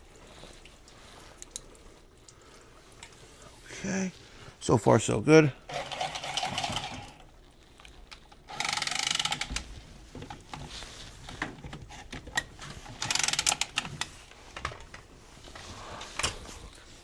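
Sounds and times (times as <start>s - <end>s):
tubing cutter whirring around pipe: 5.7s - 7.2s, 8.5s - 9.6s.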